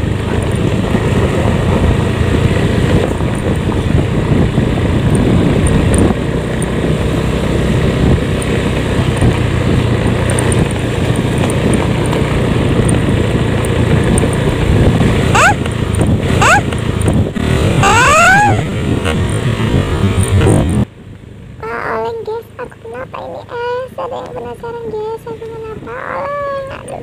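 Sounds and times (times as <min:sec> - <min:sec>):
wind buffeting microphone: 0:00.0 - 0:20.9
motorcycle engine running: 0:00.0 - 0:27.0.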